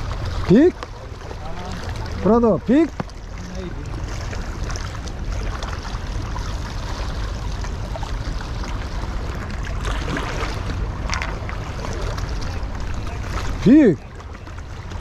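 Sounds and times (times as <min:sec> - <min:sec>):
wind rumble on microphone: 0:00.0 - 0:02.3
small waves washing over rock: 0:00.0 - 0:15.0
water splash: 0:00.0 - 0:15.0.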